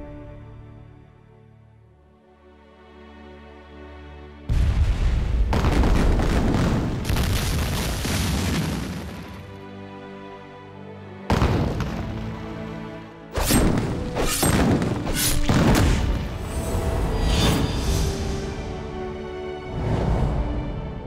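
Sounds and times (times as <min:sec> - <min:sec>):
explosion-like booms: 0:04.5 - 0:09.4, 0:14.5 - 0:16.4
dramatic music: 0:09.4 - 0:21.0.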